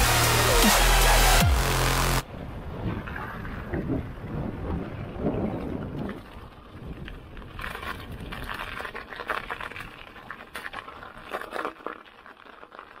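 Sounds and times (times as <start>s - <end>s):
bike tyres crunching on snow: 2.8s - 13.0s.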